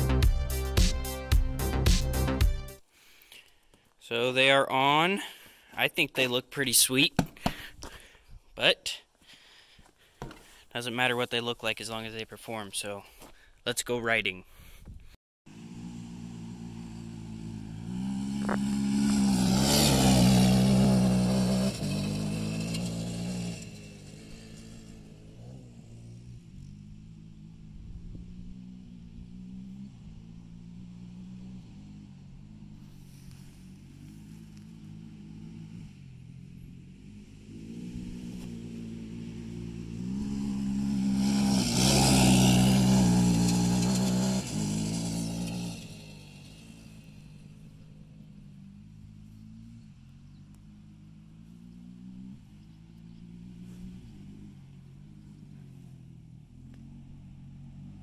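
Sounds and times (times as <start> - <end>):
quad bike engine revving: 15.5 - 58.0.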